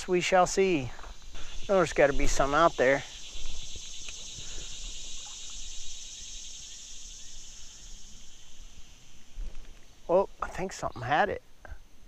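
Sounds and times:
insects trilling: 0:00.0 - 0:12.0
faint ticks: 0:03.3 - 0:05.7.

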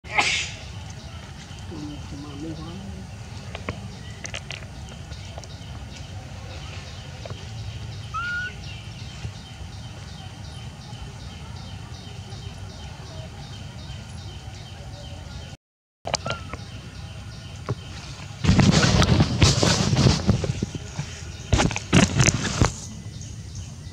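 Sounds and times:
steady low rumble: 0:00.5 - 0:15.6.

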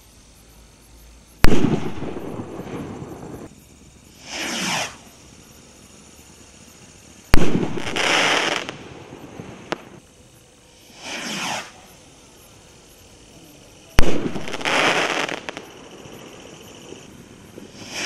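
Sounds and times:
crackling hiss: 0:00.0 - 0:18.0
firework bang: 0:01.4 - 0:03.5, 0:07.3 - 0:10.0, 0:14.0 - 0:15.7
firework launch whoosh: 0:01.4 - 0:03.5, 0:04.1 - 0:05.1, 0:07.3 - 0:10.0, 0:10.9 - 0:11.9, 0:14.0 - 0:15.8, 0:16.9 - 0:18.0.

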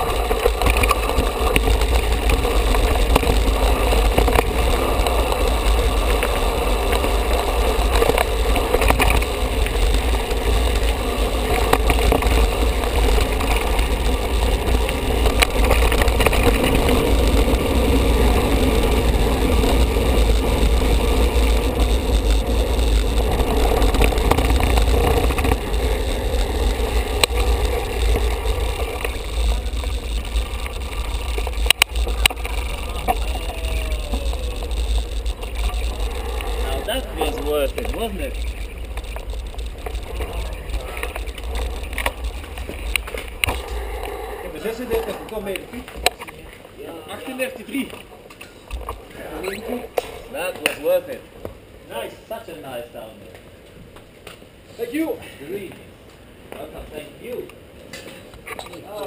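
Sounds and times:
wind buffeting microphone: 0:00.0 - 0:46.1
bike tyres rumbling on gravel: 0:00.0 - 0:52.8.

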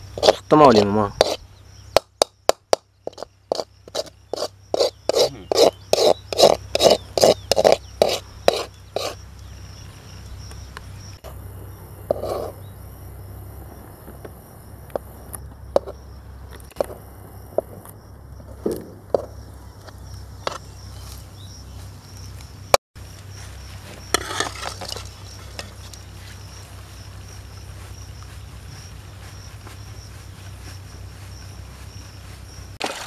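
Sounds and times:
insect buzz: 0:00.0 - 0:33.0
metal spoon scraping metal pan: 0:24.1 - 0:25.8.

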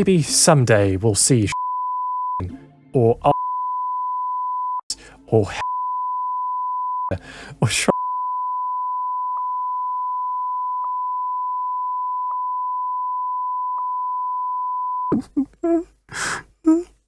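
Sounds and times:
censor bleep tone: 0:01.5 - 0:02.6, 0:03.3 - 0:04.8, 0:05.5 - 0:07.2, 0:07.9 - 0:15.2
person speaking: 0:02.4 - 0:03.4, 0:04.9 - 0:05.7.

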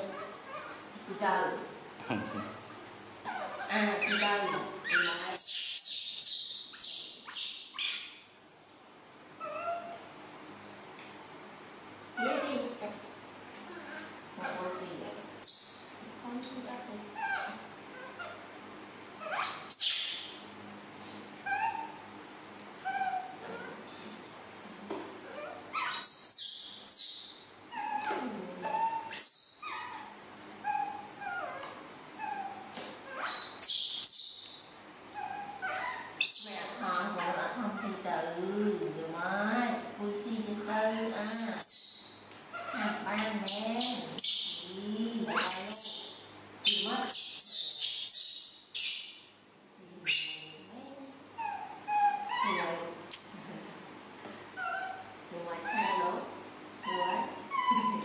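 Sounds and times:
baby monkey crying: 0:02.1 - 0:08.2, 0:09.4 - 0:10.0, 0:17.2 - 0:18.4, 0:19.2 - 0:20.3, 0:21.4 - 0:22.1, 0:22.8 - 0:23.7, 0:25.3 - 0:34.4, 0:35.1 - 0:38.0, 0:41.2 - 0:43.2, 0:45.3 - 0:48.9, 0:51.4 - 0:52.9, 0:54.6 - 0:58.0.

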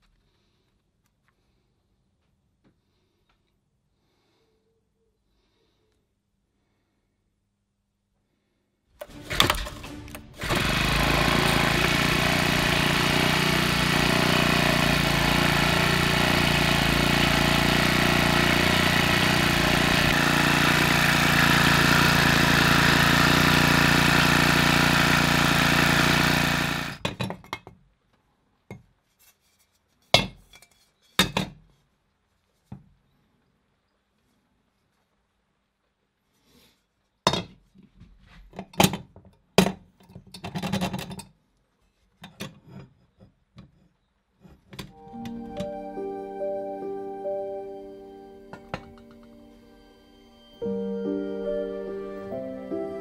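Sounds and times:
small petrol engine running: 0:09.0 - 0:27.1, 0:48.4 - 0:53.0.

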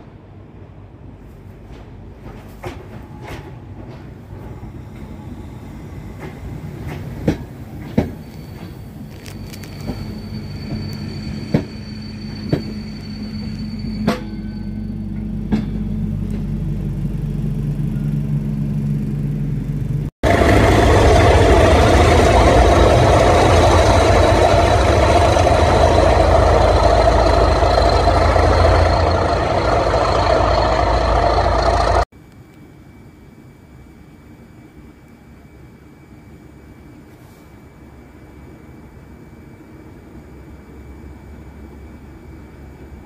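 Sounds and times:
train coaches rolling past: 0:00.0 - 0:32.1
diesel locomotive engine running: 0:00.1 - 0:32.1.

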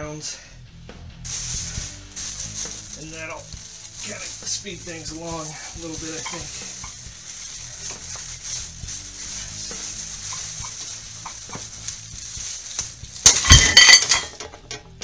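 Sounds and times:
plastic bags rustling: 0:01.2 - 0:14.8
metal weights crashing: 0:12.8 - 0:15.0.

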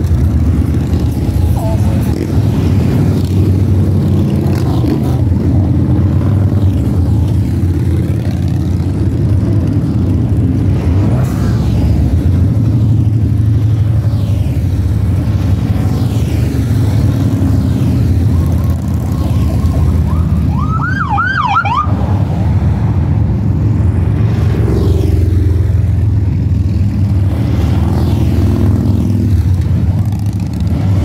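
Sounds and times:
motorcycle engines rumbling: 0:00.0 - 0:31.0
police siren whoops: 0:19.6 - 0:22.0.

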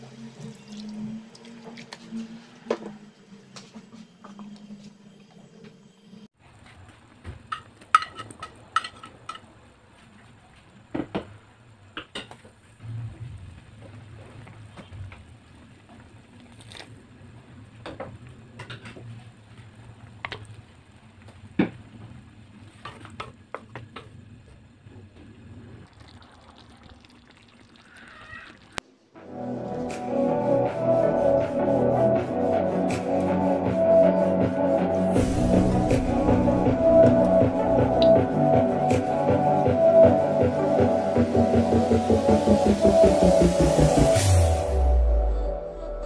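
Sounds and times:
music: 0:29.2 - 0:46.0.

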